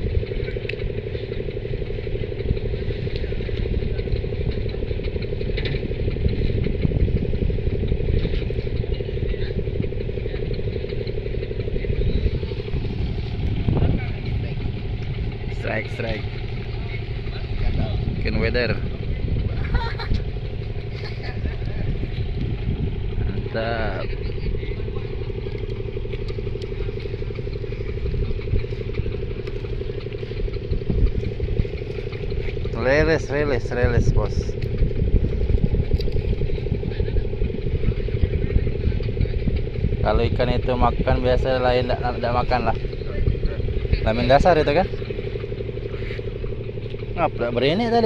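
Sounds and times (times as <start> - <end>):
engine idling: 0.0 - 48.0.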